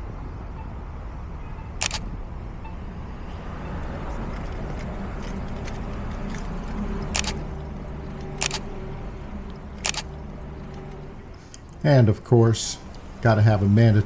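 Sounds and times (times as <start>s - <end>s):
city traffic rumbling: 0.0s - 14.0s
camera shutter clicks: 1.8s - 2.1s, 7.1s - 7.4s, 8.4s - 8.6s, 9.8s - 10.1s.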